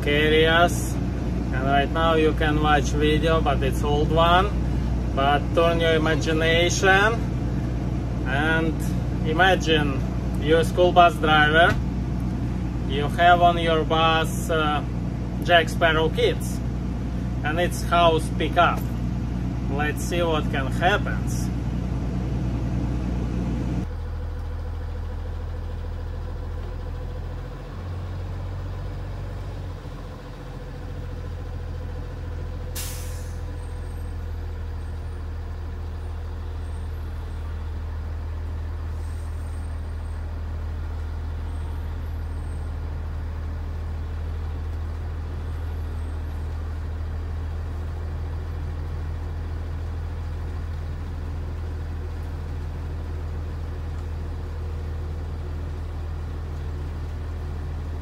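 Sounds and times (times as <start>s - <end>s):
bus engine running: 0.0s - 58.0s
air brakes hissing: 32.6s - 34.2s, 38.9s - 40.2s.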